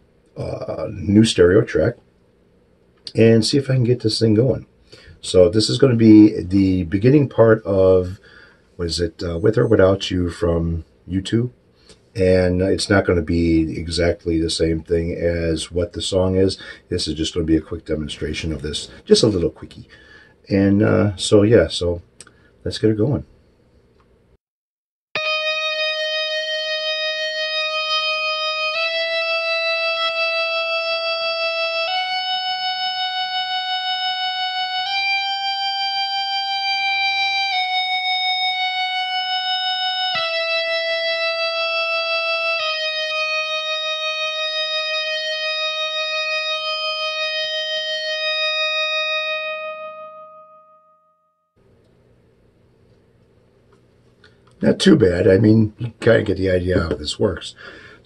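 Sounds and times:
sustained electric guitar notes: 25.2 - 51.4.

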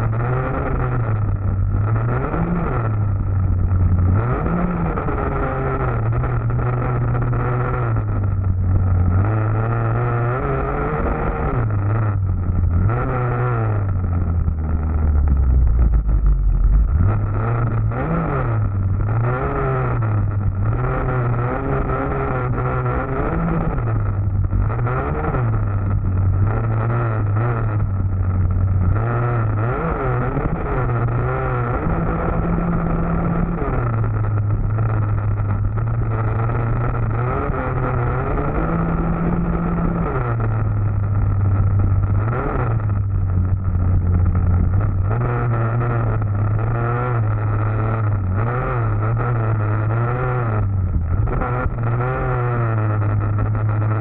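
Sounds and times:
dirt bike engine revving: 0.0 - 16.0, 16.7 - 54.0.

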